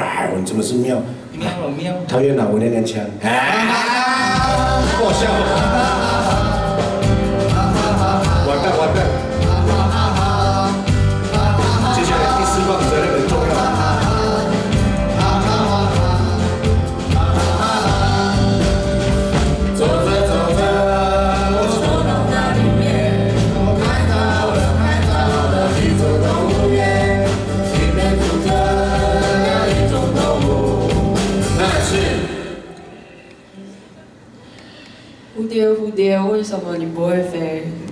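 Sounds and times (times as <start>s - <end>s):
person singing: 3.3s - 33.1s
bass line: 4.2s - 32.4s
drum beat: 4.3s - 32.4s.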